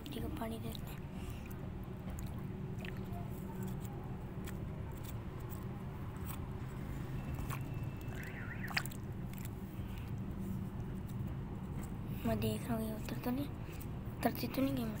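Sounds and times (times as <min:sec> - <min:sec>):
low mechanical hum: 0:00.0 - 0:15.0
high warbling chirp: 0:07.7 - 0:09.0.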